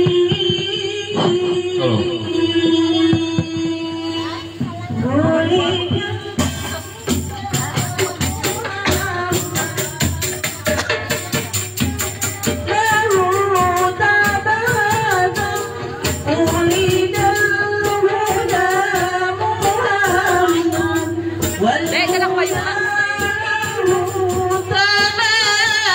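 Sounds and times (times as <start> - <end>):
women singing: 0.0 - 25.9
frame drums and jingling percussion: 5.8 - 25.2.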